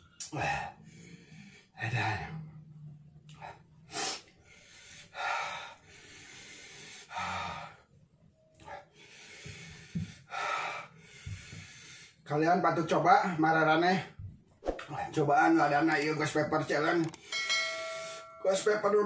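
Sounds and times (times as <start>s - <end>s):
man breathing hard: 0.2s - 2.5s, 3.3s - 7.9s, 8.6s - 12.3s, 17.2s - 18.4s.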